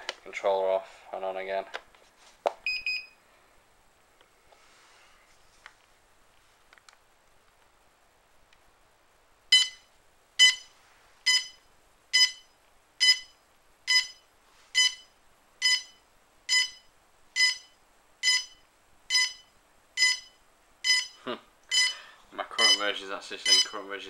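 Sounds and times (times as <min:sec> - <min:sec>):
drone short high beeps: 0:20.9 - 0:22.0.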